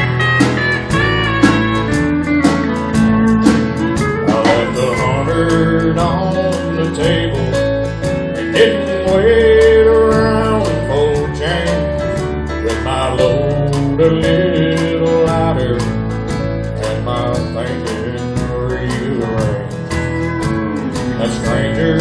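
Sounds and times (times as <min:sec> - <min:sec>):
pedal steel guitar sliding notes: 0:00.0 - 0:12.2, 0:17.9 - 0:22.0
steady drum beat: 0:00.0 - 0:22.0
strummed acoustic guitar: 0:00.0 - 0:22.0.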